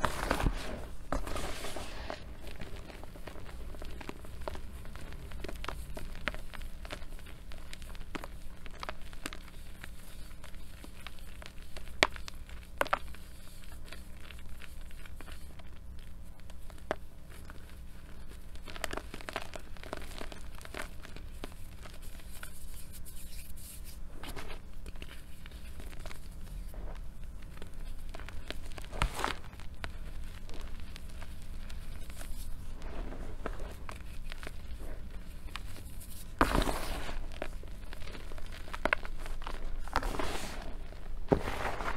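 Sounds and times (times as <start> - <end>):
chalk crunching by hand: 0.0 - 3.6, 27.6 - 41.9
sharp chalk cracks: 0.0 - 32.6, 33.4 - 40.7.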